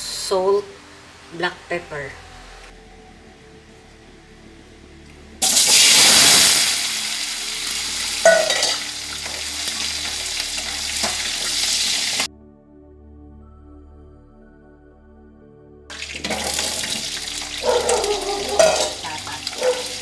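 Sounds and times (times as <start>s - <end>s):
carrots sizzling in hot oil: 5.4s - 12.3s, 15.9s - 20.0s
metal utensil clinking on pan: 8.2s - 8.9s, 18.4s - 19.8s.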